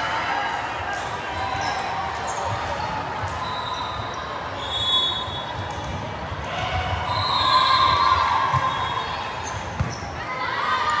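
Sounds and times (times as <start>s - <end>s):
crowd voices in a hall: 0.0s - 11.0s.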